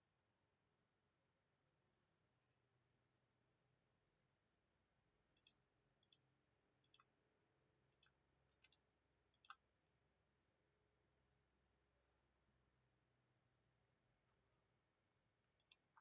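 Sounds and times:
faint computer mouse clicks: 5.4s - 6.2s, 6.8s - 7.1s, 7.9s - 9.6s, 15.6s - 16.0s.

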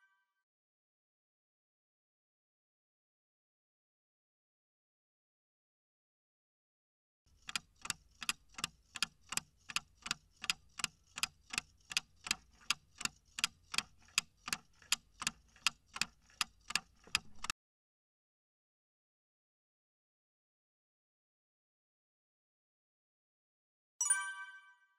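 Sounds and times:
clock ticking: 7.3s - 17.5s.

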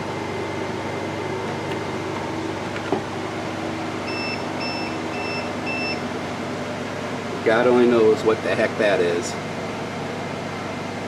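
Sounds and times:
steady hum: 0.0s - 11.0s
battery backup beeping: 4.0s - 6.1s.

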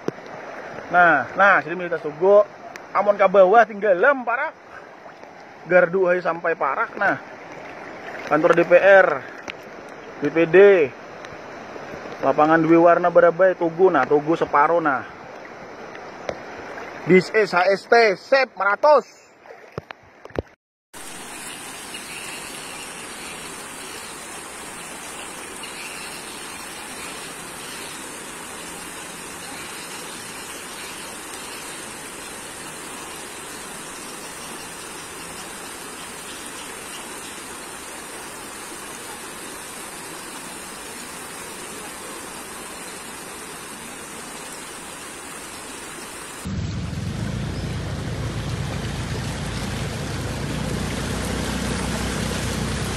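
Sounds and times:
rushing water: 0.0s - 52.9s
deep rumble: 46.5s - 51.3s.

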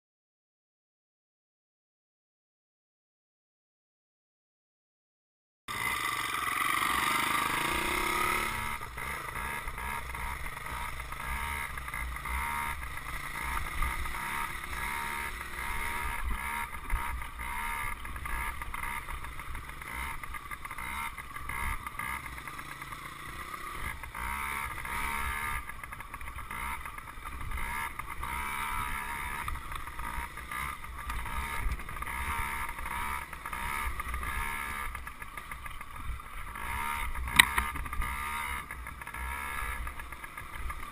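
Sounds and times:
dirt bike engine running: 5.7s - 40.9s.

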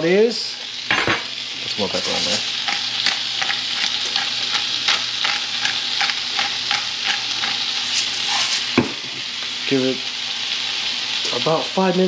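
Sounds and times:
fish sizzling in a skillet: 0.0s - 12.0s
pepper mill grinding: 1.6s - 11.4s.

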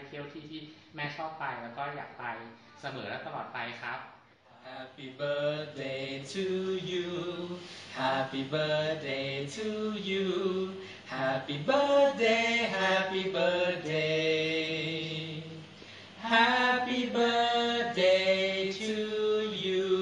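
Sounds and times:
person singing slow melody: 4.6s - 20.0s.

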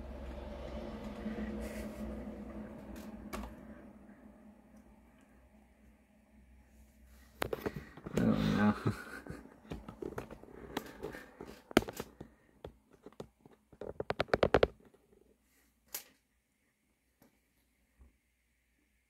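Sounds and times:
short voice-like sound: 8.1s - 9.0s.

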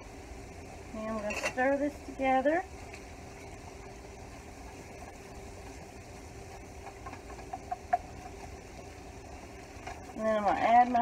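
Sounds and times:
low steady hum: 0.0s - 11.0s
whisk stirring in a skillet: 4.4s - 11.0s
whisk tapping against pan: 6.4s - 8.6s.

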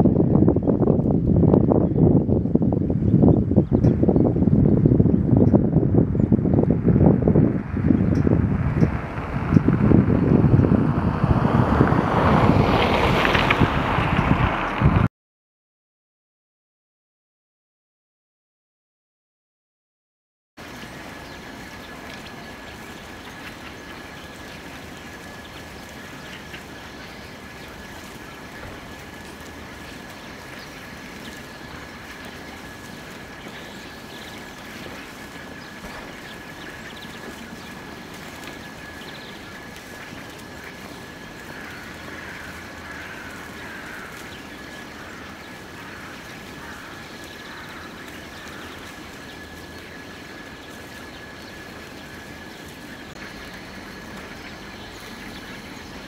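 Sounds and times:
steady background hum: 20.6s - 56.0s.

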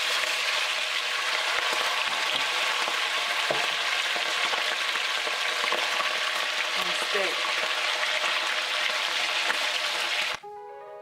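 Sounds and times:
meat sizzling in hot oil: 0.0s - 10.4s.

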